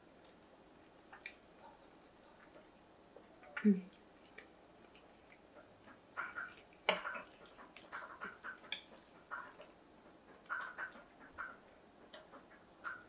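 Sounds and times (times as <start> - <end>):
spoon scooping mac and cheese: 6.3 - 9.7.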